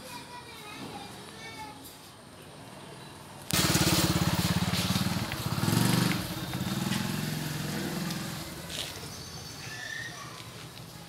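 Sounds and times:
motorcycle engine running: 3.5 - 8.9.

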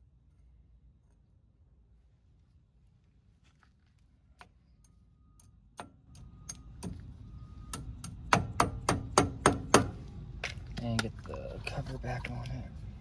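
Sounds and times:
mallet tapping on wheel hub: 7.7 - 10.0.

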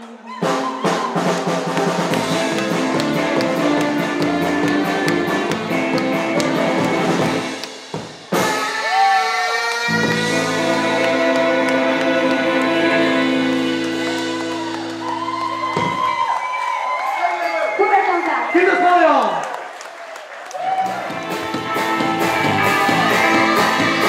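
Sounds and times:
drum kit: 0.0 - 16.3, 20.7 - 24.0
rockabilly band playing: 0.4 - 16.3, 20.8 - 24.0
electric guitar: 1.2 - 16.3, 20.8 - 24.0
low bass notes: 2.1 - 7.6, 9.9 - 15.8.

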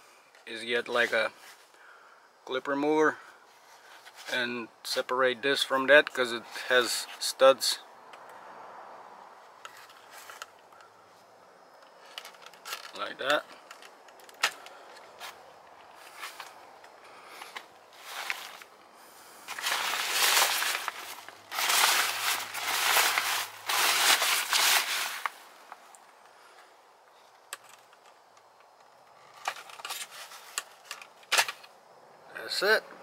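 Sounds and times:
fabric rustling and crinkling: 12.0 - 18.7, 19.3 - 25.9.

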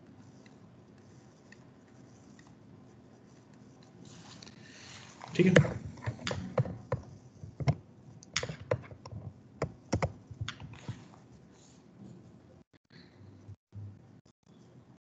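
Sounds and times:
keyboard keystroke clicks: 7.6 - 10.8.

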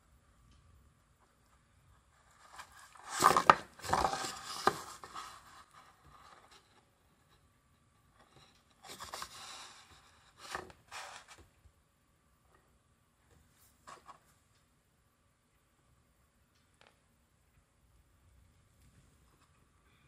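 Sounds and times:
cardboard scraping on wooden floor: 2.6 - 5.6.

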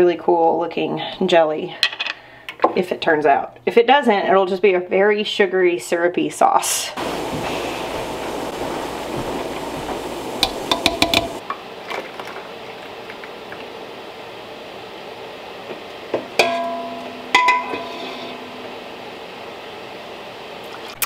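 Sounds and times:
spoon stirring in a pot: 9.2 - 11.4, 15.7 - 18.7.

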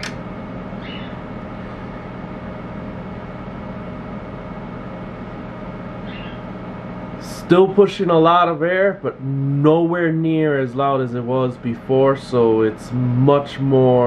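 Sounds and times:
cooling fan whirring: 0.0 - 14.0.

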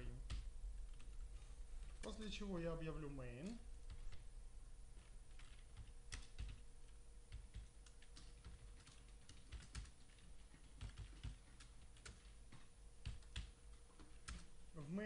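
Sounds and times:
low steady hum: 0.0 - 15.0
keyboard typing clicks: 3.4 - 4.3, 5.0 - 14.6.

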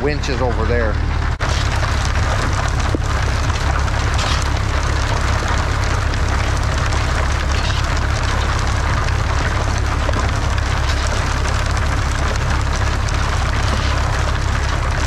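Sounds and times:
farm machinery humming: 0.0 - 15.0.

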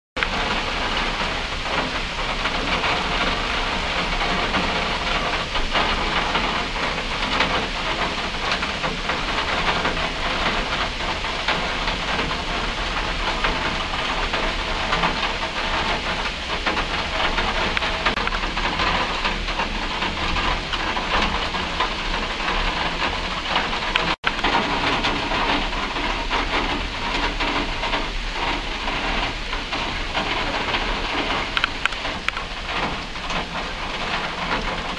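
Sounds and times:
heavy rain falling: 0.2 - 34.9.

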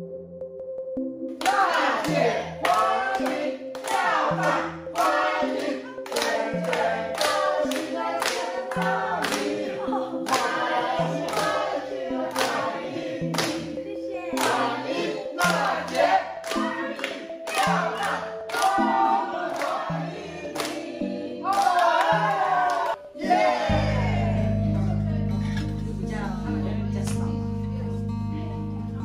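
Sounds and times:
hands clapping: 1.3 - 19.9, 20.5 - 20.8, 21.4 - 23.0
group singing together: 1.4 - 24.7.

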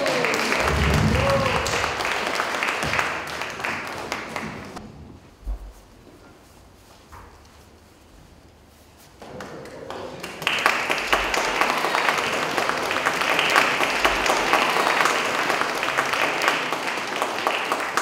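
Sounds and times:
audience applauding: 0.0 - 4.8, 9.2 - 18.0.

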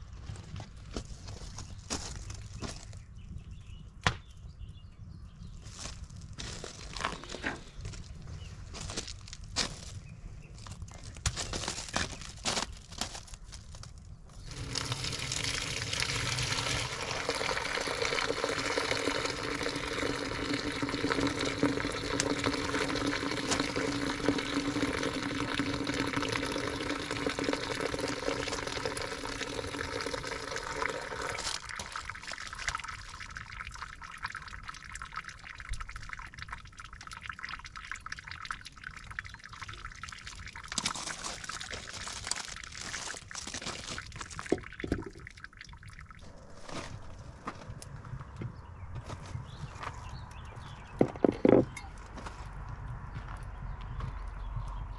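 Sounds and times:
water pouring into container: 14.4 - 46.9.

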